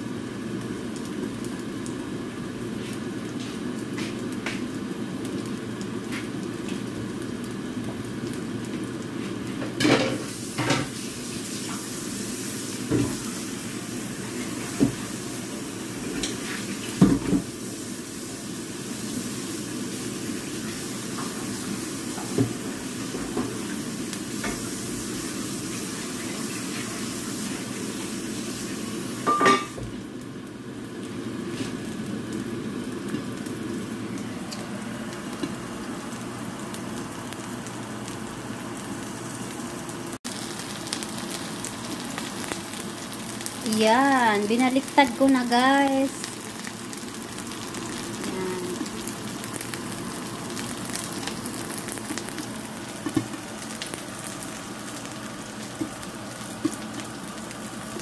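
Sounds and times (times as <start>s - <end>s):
pancake sizzling in a pan: 0.0s - 58.0s.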